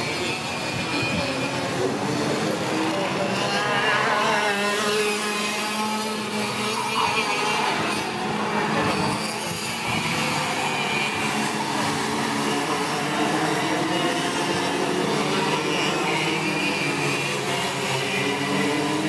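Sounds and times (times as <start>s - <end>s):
kart engines buzzing: 0.0s - 19.0s.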